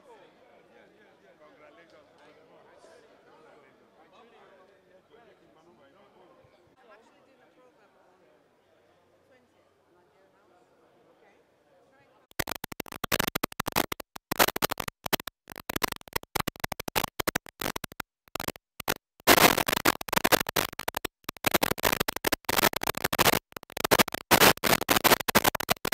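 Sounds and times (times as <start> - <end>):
turntable scratching: 12.3 - 25.9.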